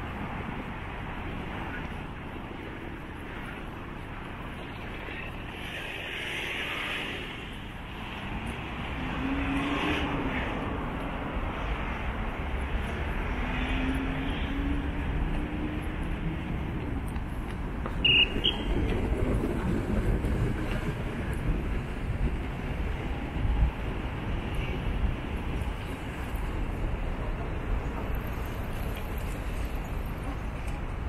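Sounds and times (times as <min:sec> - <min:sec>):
traffic rumble: 0:00.0 - 0:31.0.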